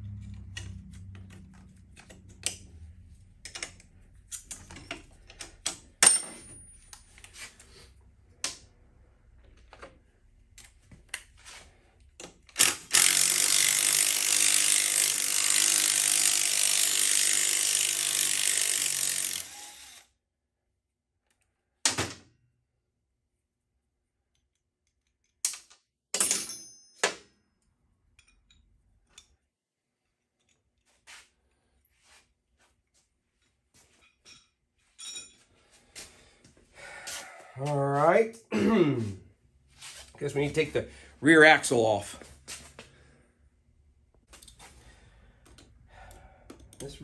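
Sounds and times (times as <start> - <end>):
cordless power tool running: 12.7 - 20.1
hand tools clinking on metal: 34.0 - 35.5.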